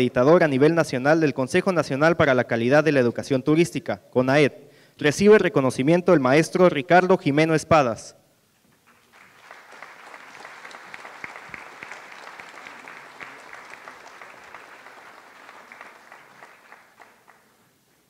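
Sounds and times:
crowd applauding: 8.8 - 17.7.

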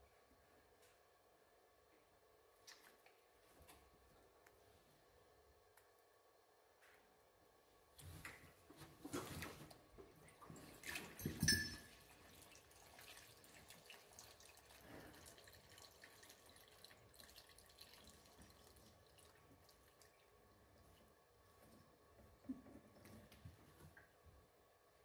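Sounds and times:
fluid splashing and dripping: 12.1 - 21.1.

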